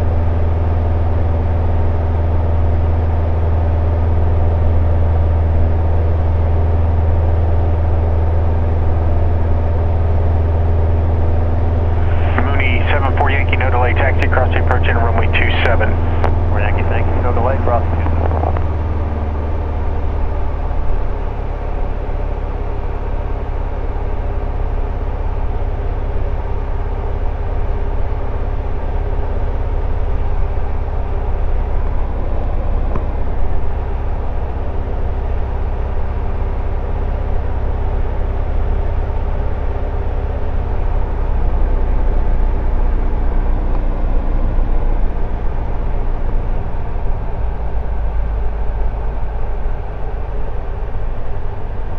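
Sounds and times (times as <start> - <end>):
light aircraft engine droning: 0.0 - 51.9.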